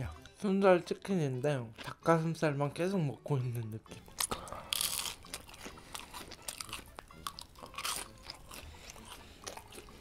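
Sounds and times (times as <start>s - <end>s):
crunchy chewing: 3.9s - 10.0s
biting fried chicken: 4.0s - 10.0s.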